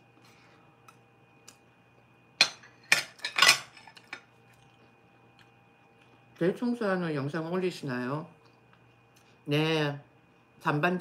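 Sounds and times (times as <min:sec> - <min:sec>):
spoon and chopsticks clinking on dishes: 0:02.4 - 0:04.2.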